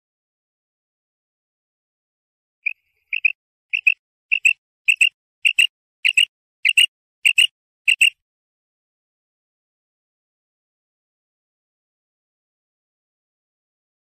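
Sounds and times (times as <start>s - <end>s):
quail calling: 2.6s - 8.2s.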